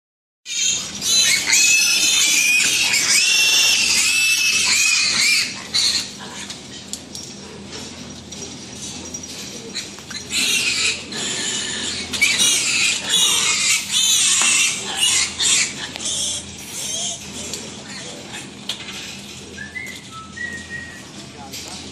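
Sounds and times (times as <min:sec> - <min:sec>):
piglets squealing: 0:00.5 - 0:06.6, 0:09.7 - 0:19.9.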